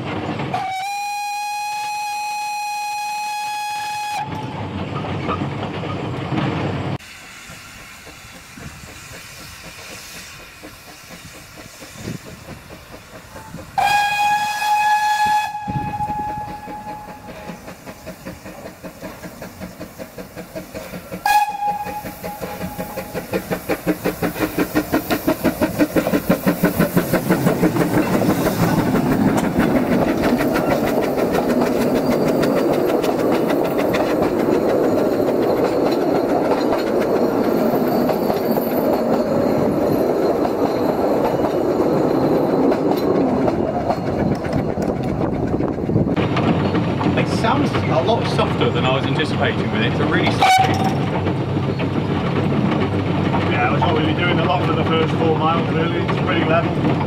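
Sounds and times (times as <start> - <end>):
steam locomotive exhaust beat: 0.0 - 5.4, 7.0 - 57.0
steam locomotive whistle: 0.5 - 4.7, 13.8 - 17.8, 21.2 - 23.2, 50.3 - 51.0.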